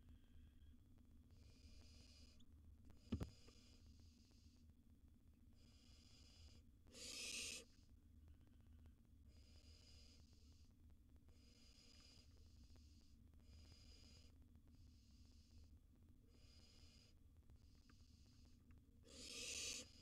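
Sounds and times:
low steady hum: 0:00.0 - 0:06.9
owl nestlings hissing snore calls: 0:01.4 - 0:02.4, 0:05.6 - 0:07.7, 0:16.3 - 0:17.2, 0:19.0 - 0:20.0.

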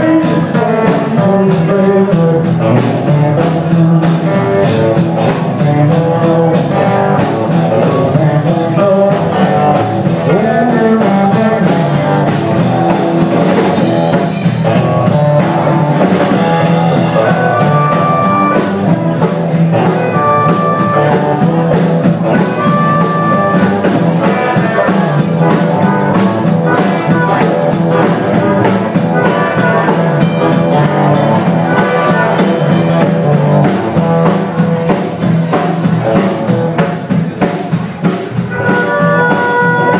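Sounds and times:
blues-rock band playing: 0:00.0 - 0:39.9
harmonica wailing: 0:16.4 - 0:18.9, 0:19.8 - 0:21.6, 0:22.3 - 0:26.2, 0:38.4 - 0:39.9.

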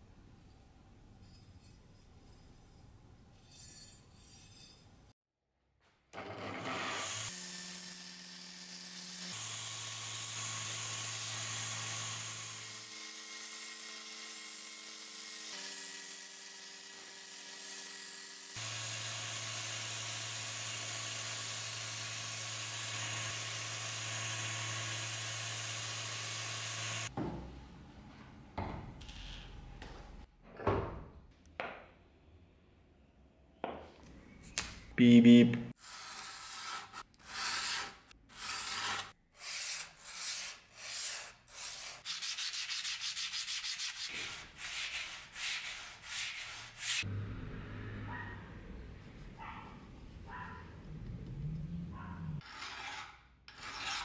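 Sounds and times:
belt grinder grinding blade: 0:06.2 - 0:27.1.

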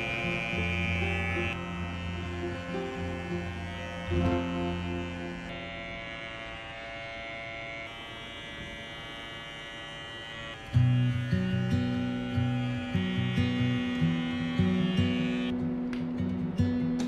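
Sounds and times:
background music: 0:00.0 - 0:05.5
electric clipper buzzing: 0:00.0 - 0:15.6.

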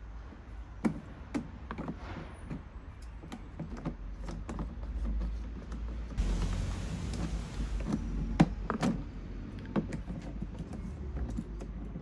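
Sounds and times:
steady low rumble: 0:06.2 - 0:09.6.

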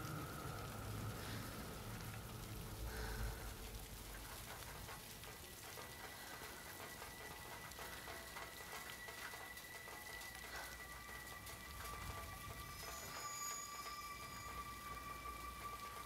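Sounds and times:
rain falling: 0:00.0 - 0:16.0
faint high steady tone: 0:09.2 - 0:16.0.

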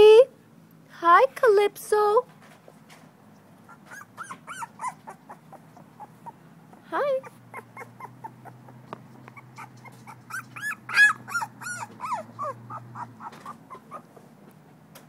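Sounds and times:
puppy whimpering squeaks: 0:03.6 - 0:14.2.

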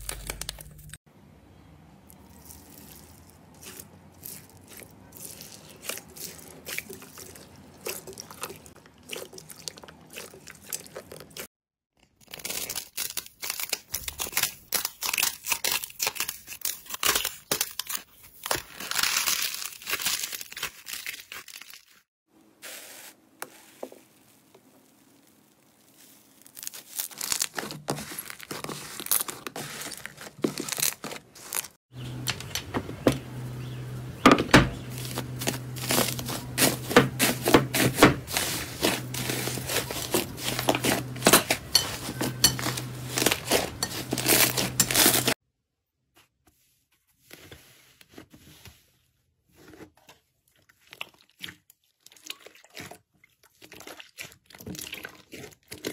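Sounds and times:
foil crinkling: 0:00.0 - 0:01.0, 0:12.2 - 0:22.0, 0:22.6 - 0:31.8, 0:34.8 - 0:45.4
slime squishing and crackling: 0:00.0 - 0:01.0, 0:02.1 - 0:11.5, 0:12.2 - 0:22.0, 0:23.5 - 0:31.8, 0:34.8 - 0:45.4, 0:50.5 - 0:55.9.

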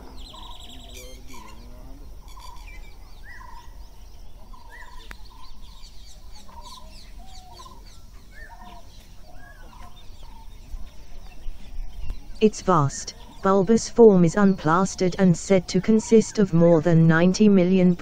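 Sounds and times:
short bird calls: 0:00.0 - 0:11.4.

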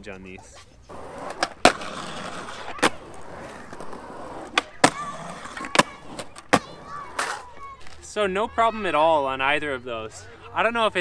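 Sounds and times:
skateboard wheels rolling on concrete: 0:00.0 - 0:11.0
skateboard clacks: 0:00.9 - 0:08.0.

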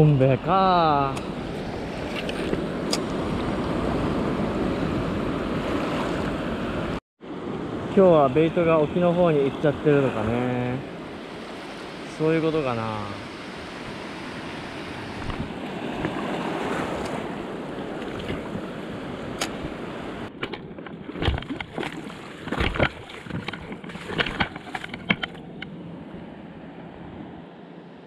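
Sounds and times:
surf washing over reef: 0:00.5 - 0:27.6
wind on microphone: 0:13.2 - 0:25.7
splashes: 0:17.9 - 0:18.7, 0:20.4 - 0:25.4
crunching steps on wet reef: 0:20.4 - 0:25.6.

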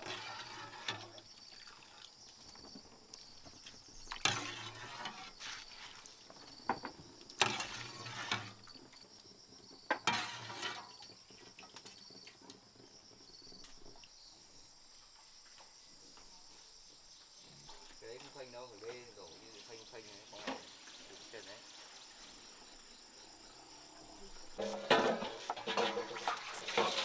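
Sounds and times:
hot water pouring and splashing: 0:00.0 - 0:09.1, 0:10.0 - 0:12.0, 0:24.4 - 0:27.0
ladle clinking: 0:24.6 - 0:27.0.

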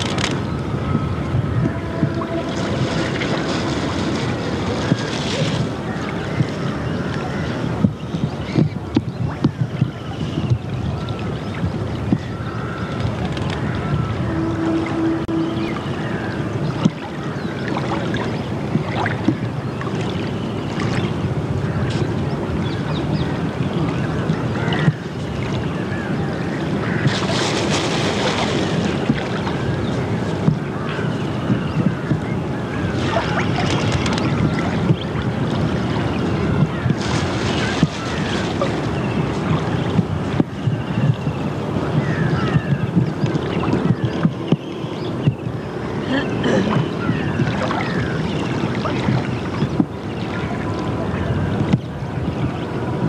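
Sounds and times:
wind buffeting microphone: 0:00.0 - 0:53.0
river water rushing: 0:01.2 - 0:06.8, 0:23.3 - 0:31.5.

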